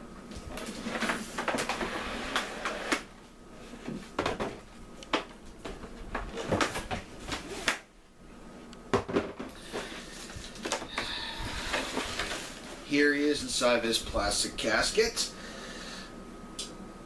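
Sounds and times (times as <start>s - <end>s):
cardboard and plastic rustling: 0.3s - 3.1s, 3.7s - 7.9s, 9.1s - 12.9s.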